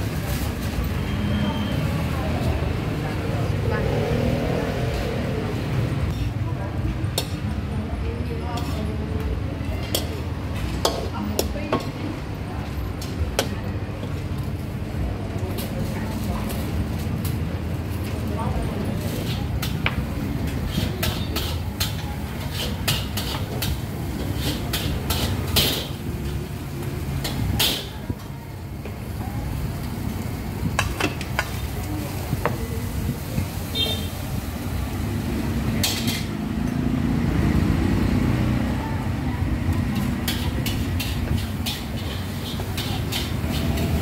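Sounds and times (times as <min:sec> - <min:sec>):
street traffic rumble: 0:00.0 - 0:44.0
metal utensils clinking on pots: 0:19.0 - 0:26.0, 0:35.7 - 0:36.9, 0:39.9 - 0:44.0.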